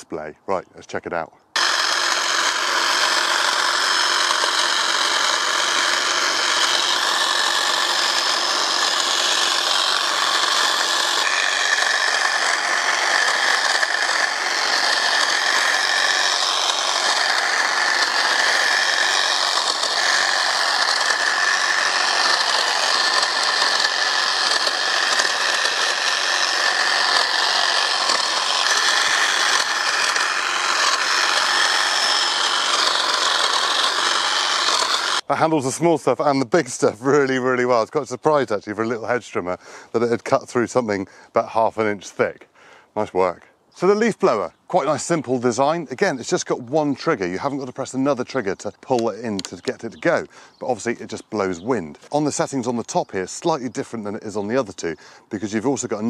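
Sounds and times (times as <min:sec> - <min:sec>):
hedge trimmer blades chattering: 0:00.0 - 0:56.0
motor whine: 0:01.6 - 0:35.3.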